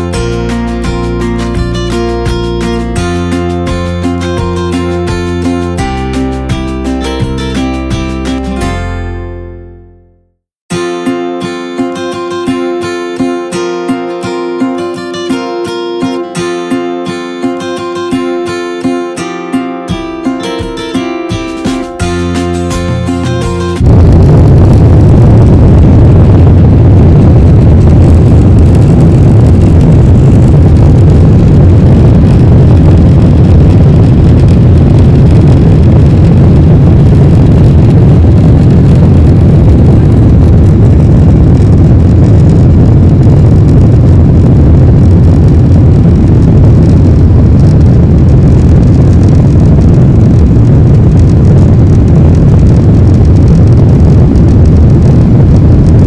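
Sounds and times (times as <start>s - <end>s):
airliner cabin engine rumble: 22.2s - 56.0s.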